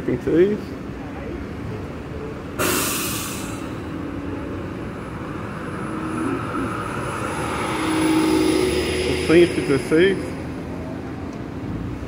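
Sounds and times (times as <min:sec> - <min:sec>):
tyre and road noise: 0:00.0 - 0:12.0
hiss of air: 0:02.6 - 0:03.9.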